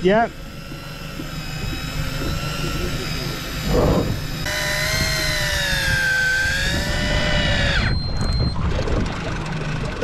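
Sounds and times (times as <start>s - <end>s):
fishing reel whining: 0.0s - 9.8s
wind rumble: 3.6s - 10.0s.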